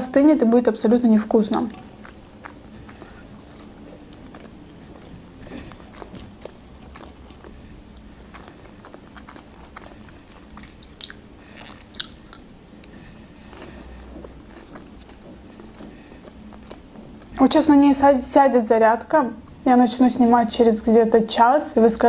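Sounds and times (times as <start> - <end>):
person chewing crunchy food: 1.4 - 17.6
wet mouth clicks: 1.5 - 13.0.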